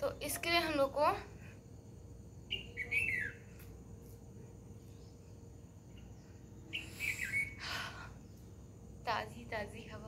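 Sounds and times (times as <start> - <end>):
faint outdoor background: 0.0 - 10.0
birds chirping: 2.0 - 10.0.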